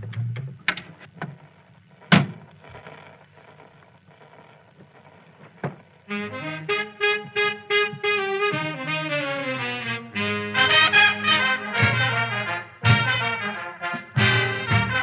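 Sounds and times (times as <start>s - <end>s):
phonograph clicks and knocks: 0.0s - 1.4s, 2.1s - 2.5s
big-band swing record: 6.1s - 15.0s.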